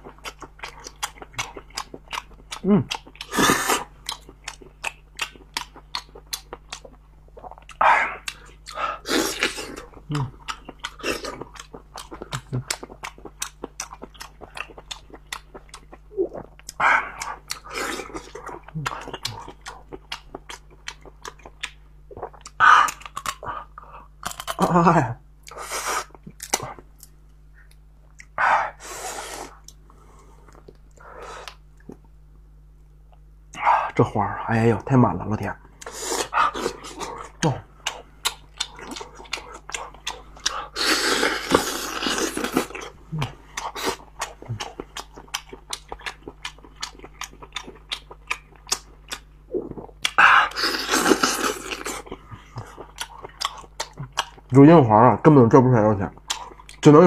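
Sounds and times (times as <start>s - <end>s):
mouth smacks and chewing: 0.1s - 24.6s, 25.4s - 28.4s, 35.8s - 40.8s, 41.4s - 54.5s, 56.2s - 56.9s
wet sucking noise: 28.8s - 29.7s.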